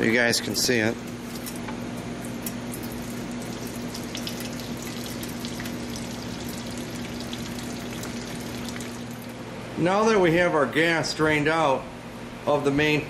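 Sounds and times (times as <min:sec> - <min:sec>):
fuel pouring into a bucket: 0:02.9 - 0:09.3.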